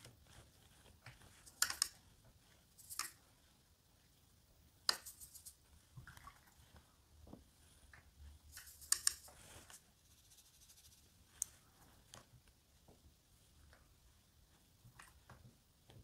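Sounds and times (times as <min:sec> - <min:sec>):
brush tapping palette and pot: 0:00.0 - 0:06.3, 0:07.9 - 0:13.0.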